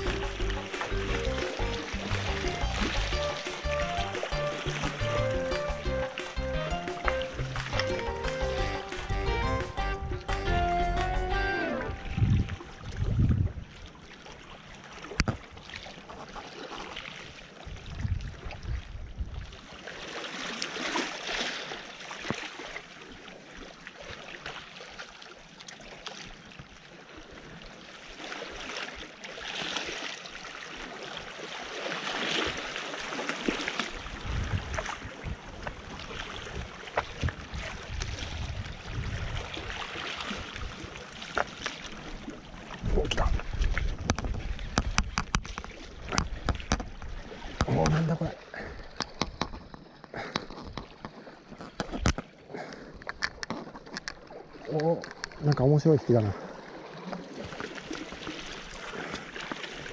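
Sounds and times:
wind buffeting microphone: 11.9s - 13.8s, 17.6s - 19.5s, 34.0s - 41.0s, 42.8s - 47.9s
waves splashing against rocks: 19.6s - 25.1s, 27.4s - 59.9s.

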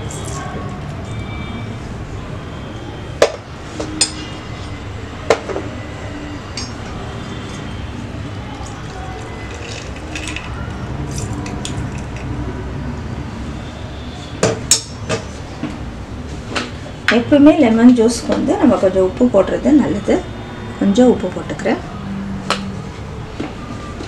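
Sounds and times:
low background noise: 0.0s - 24.0s
clinks against glass tumbler: 6.6s - 6.8s.

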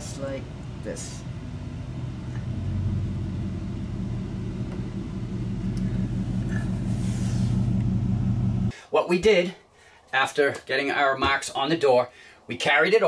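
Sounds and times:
machine hum and rumble: 0.0s - 8.7s.

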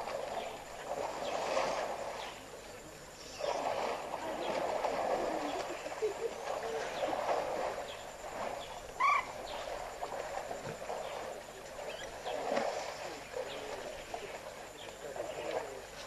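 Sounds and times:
frogs calling: 0.0s - 16.0s.

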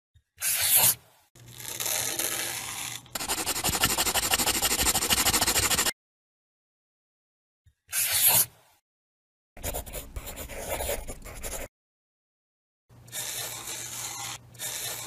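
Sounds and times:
crayon scribbling on paper: 3.2s - 5.9s, 9.6s - 11.7s, 13.1s - 15.0s.

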